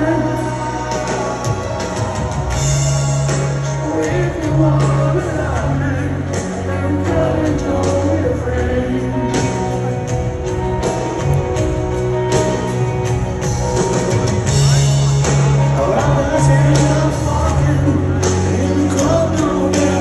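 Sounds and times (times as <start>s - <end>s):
person singing: 0.0s - 11.3s, 15.6s - 20.0s
electric guitar: 0.0s - 20.0s
live rock ballad over pa: 0.0s - 20.0s
low bass notes: 0.0s - 20.0s
piano: 0.0s - 20.0s.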